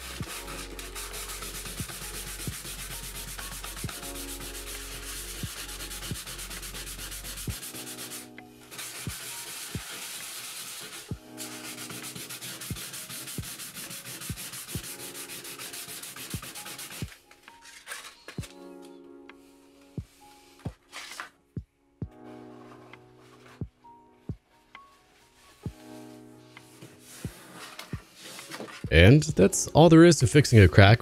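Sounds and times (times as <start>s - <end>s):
sandpaper rubbing back and forth: 0.0s - 18.6s, 25.4s - 28.8s.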